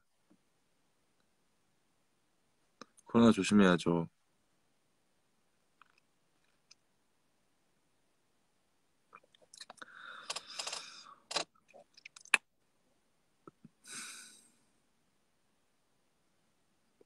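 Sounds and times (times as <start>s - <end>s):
sharp clicks: 9.5s - 12.4s.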